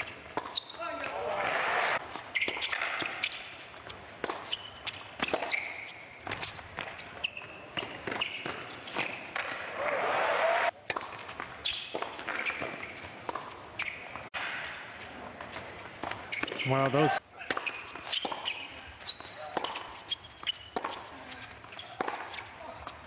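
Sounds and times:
shoe squeaks on court: 0.0 - 1.0, 1.8 - 9.4, 11.4 - 14.8, 16.1 - 22.5
tennis ball strikes and bounces: 0.0 - 9.8, 10.7 - 16.7, 17.4 - 23.0.

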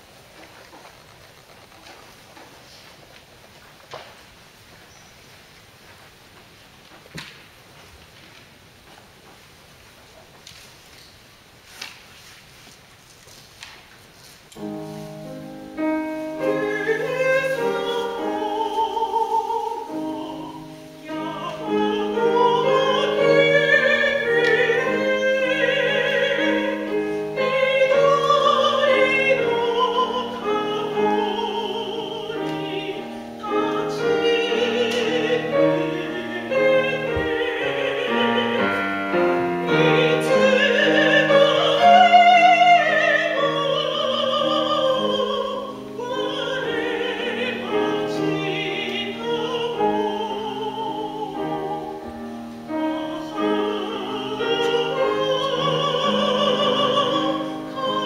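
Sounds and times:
grand piano: 0.0 - 58.0
woman singing operatically: 16.3 - 52.1, 52.7 - 58.0.

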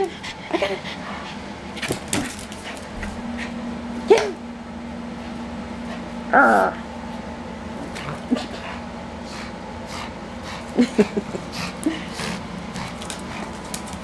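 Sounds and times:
claws clicking on tile floor: 12.8 - 14.0.

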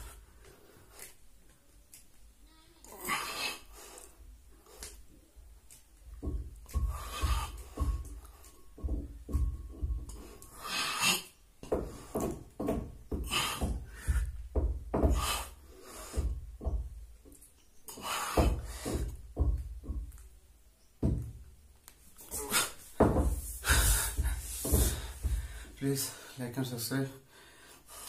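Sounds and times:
hard rhythmic breathing: 0.0 - 1.5, 2.8 - 20.2, 22.1 - 26.4, 27.2 - 28.0
dull thumps on a floor: 6.1 - 10.5, 11.6 - 15.4, 16.0 - 17.4, 18.3 - 20.3, 21.0 - 21.5, 22.9 - 25.8.

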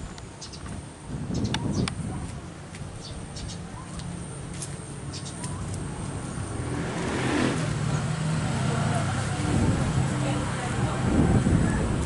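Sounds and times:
bird chirps: 0.4 - 0.7, 3.0 - 3.7, 5.1 - 5.4
vehicle engine running: 3.6 - 12.0.

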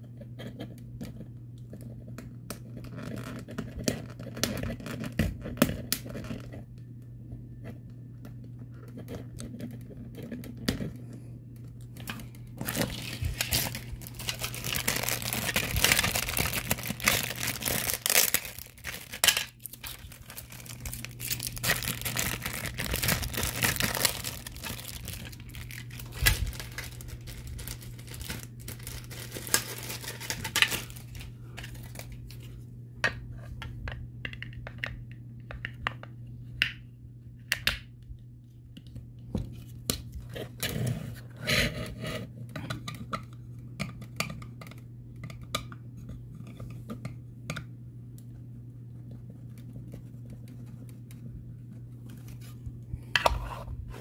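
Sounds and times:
plastic packaging crinkling: 11.8 - 32.5.

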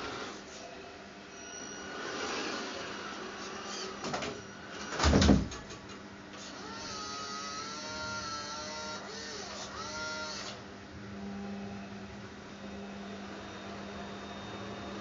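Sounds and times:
toy truck electric motor whirring: 6.4 - 10.6.

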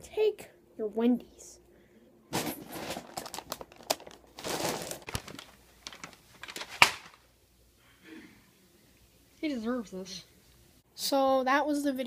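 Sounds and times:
paper bag crinkling and rustling: 2.3 - 7.3.

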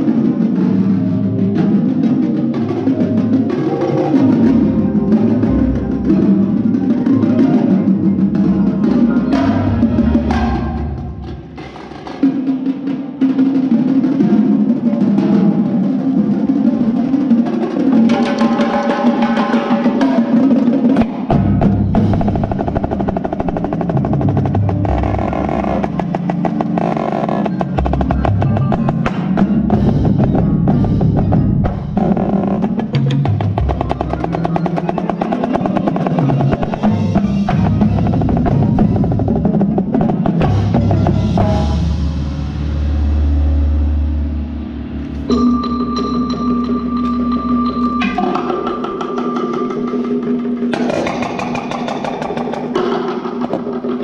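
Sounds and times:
pitched keyboard percussion: 0.0 - 42.2, 45.1 - 54.0
marching snare drum: 11.4 - 41.9
deep drum strokes: 20.9 - 45.3.

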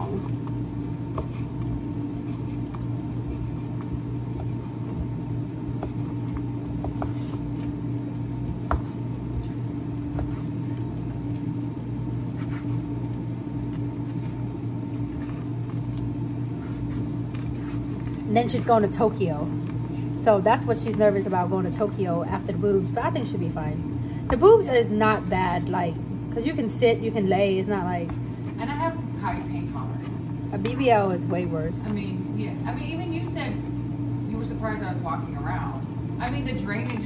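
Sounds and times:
air fryer fan humming: 0.0 - 37.0.

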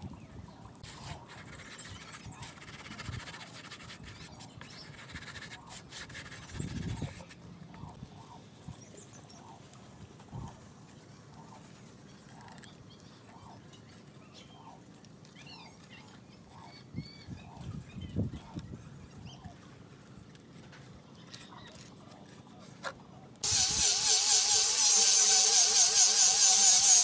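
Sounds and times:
hands rubbing sawdust on wood: 0.8 - 7.4, 23.4 - 27.0.

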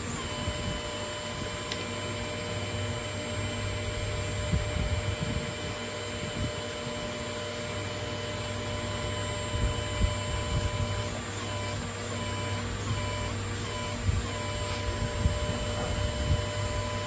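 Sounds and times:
machine hum and hiss: 0.0 - 17.0.

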